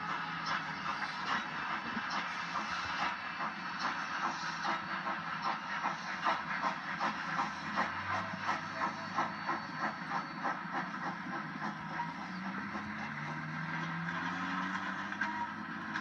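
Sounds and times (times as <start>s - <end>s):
steady steam hiss: 0.0s - 15.9s
steam locomotive chuffing: 0.0s - 16.0s.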